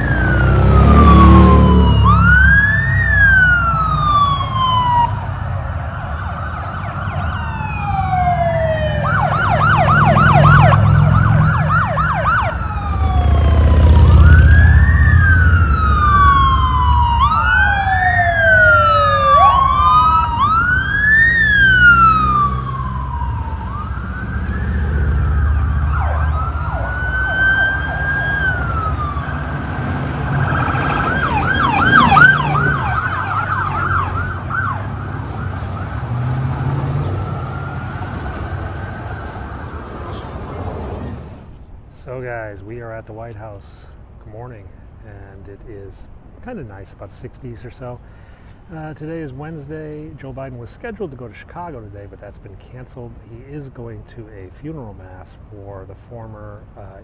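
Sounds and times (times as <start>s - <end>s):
police sirens wailing: 0.0s - 41.6s
vehicle engines rumbling: 0.0s - 57.0s.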